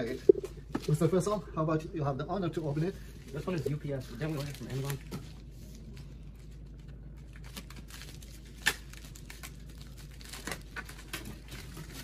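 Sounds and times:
low steady hum: 0.0s - 12.0s
plastic mailer bag crinkling: 2.6s - 12.0s.

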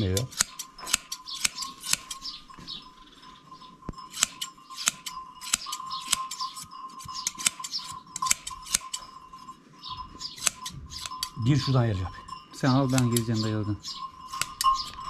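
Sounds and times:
shears snipping fleece: 0.0s - 2.3s, 4.1s - 9.0s, 10.3s - 11.3s.

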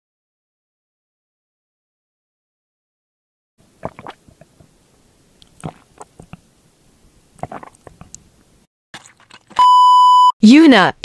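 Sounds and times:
sipping through a straw: 3.8s - 4.7s, 5.4s - 6.5s, 7.3s - 8.3s, 9.0s - 9.7s
pure-tone beep: 9.6s - 10.4s.

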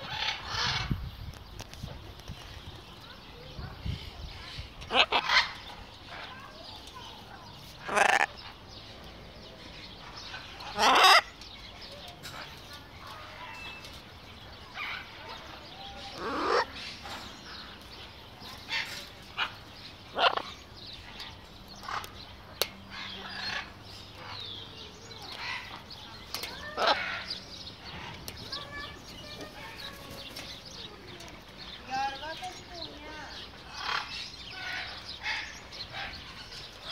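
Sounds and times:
parrot squawking: 4.9s - 5.6s, 7.8s - 8.4s, 10.6s - 11.3s, 16.1s - 16.8s, 20.1s - 20.5s, 26.7s - 27.3s.

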